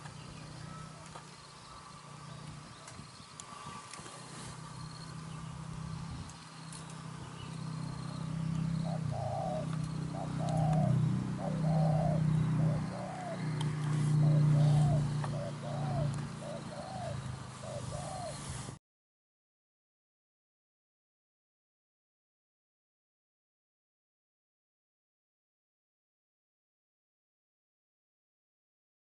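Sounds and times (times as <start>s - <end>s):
doves cooing: 0.0s - 18.7s.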